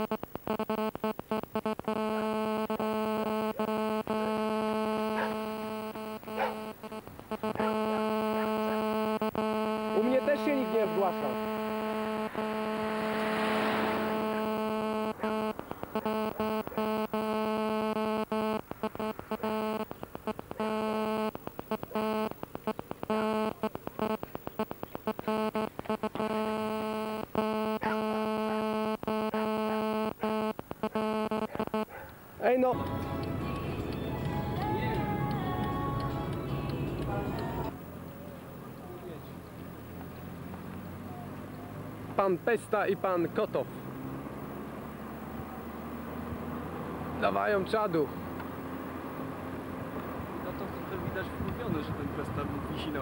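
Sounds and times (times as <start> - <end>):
electrical buzz: 0.0 - 32.0.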